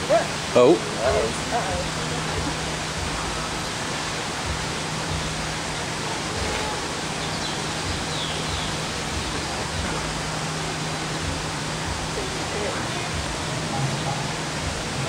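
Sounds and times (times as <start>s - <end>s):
rushing noise: 0.0s - 15.0s
faint low thumps: 4.4s - 15.0s.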